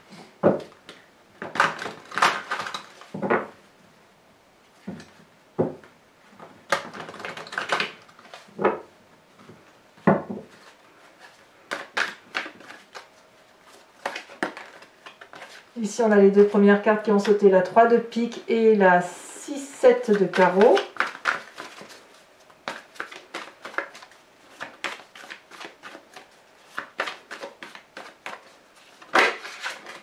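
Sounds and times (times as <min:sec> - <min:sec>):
cards shuffling: 0:06.7 - 0:08.7, 0:10.5 - 0:16.6, 0:19.8 - 0:30.0.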